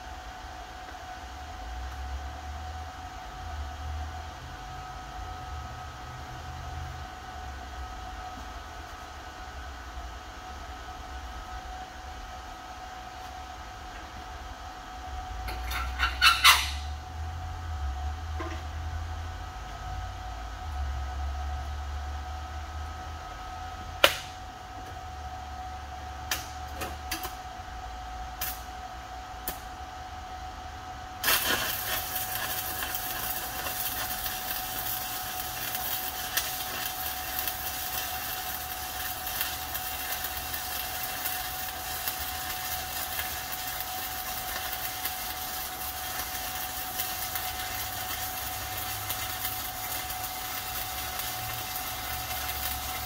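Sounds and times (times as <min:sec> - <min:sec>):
welding arc crackling: 0:15.4 - 0:17.0, 0:31.2 - 0:53.0.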